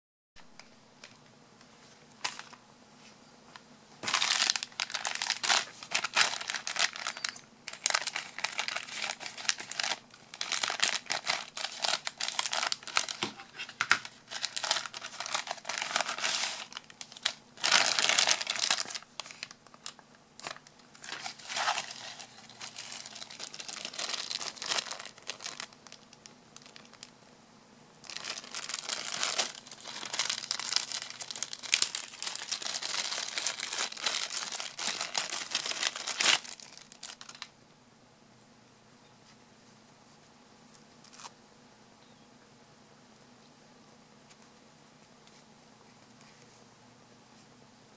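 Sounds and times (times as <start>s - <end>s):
plastic packaging crinkling: 2.0s - 2.6s, 4.0s - 27.2s, 28.0s - 37.6s.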